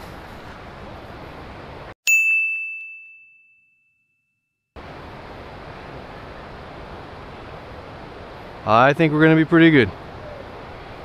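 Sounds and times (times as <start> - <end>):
bell-like ding: 2.1 - 4.6.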